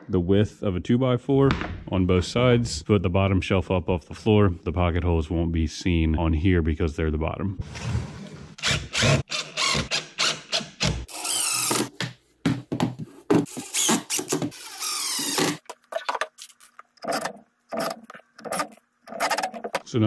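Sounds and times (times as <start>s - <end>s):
cordless drill driving screws: 8.6s - 10.4s.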